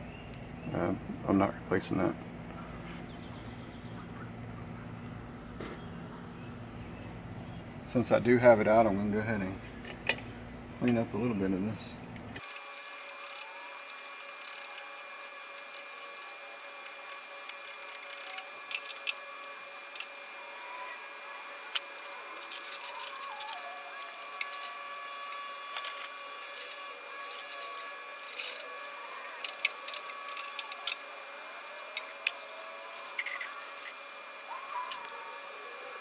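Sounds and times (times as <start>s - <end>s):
hand tool scraping metal: 12.4s - 20.2s, 21.7s - 31.1s, 31.8s - 34.0s.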